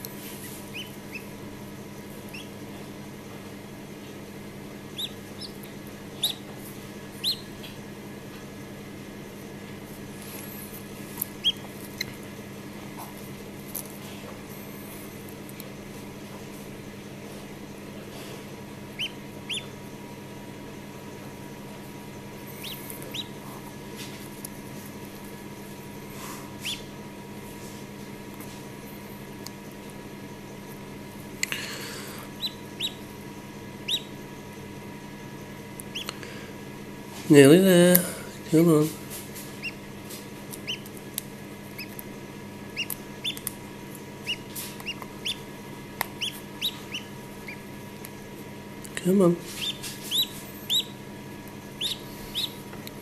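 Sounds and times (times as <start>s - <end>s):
steady low hum: 0.0s - 53.0s
duckling peeping: 0.3s - 2.6s, 4.8s - 7.8s, 11.2s - 12.3s, 18.8s - 19.9s, 22.4s - 23.6s, 25.7s - 27.0s, 32.3s - 33.2s, 33.8s - 34.4s, 35.8s - 36.3s, 39.4s - 42.0s, 42.7s - 47.8s, 49.5s - 53.0s
fingers clicking on eggshell: 35.7s - 36.2s, 40.4s - 42.1s, 42.7s - 48.2s, 49.6s - 53.0s.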